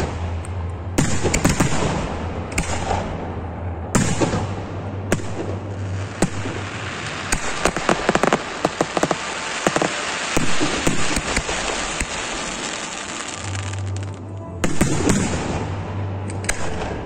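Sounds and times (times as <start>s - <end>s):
fireworks crackling and popping: 5.1s - 15.6s
firework shell bursts: 6.2s - 14.0s.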